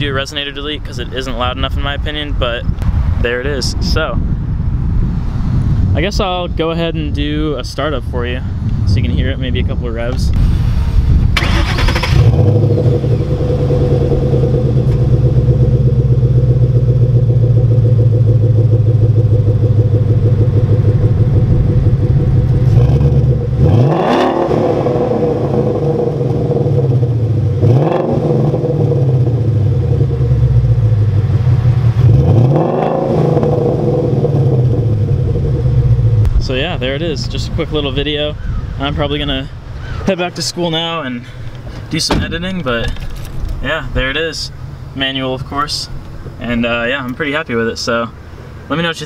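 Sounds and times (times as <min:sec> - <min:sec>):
car engine starting: 0:10.3 - 0:49.0
car engine revving: 0:10.4 - 0:38.2
car engine idling: 0:10.5 - 0:49.0.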